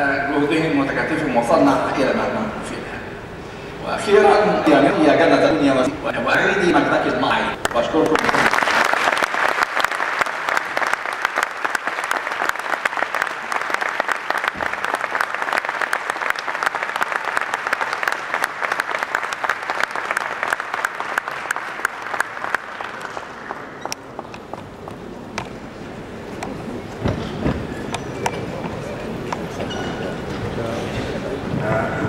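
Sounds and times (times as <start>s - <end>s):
audience applauding: 7.6s - 24.6s.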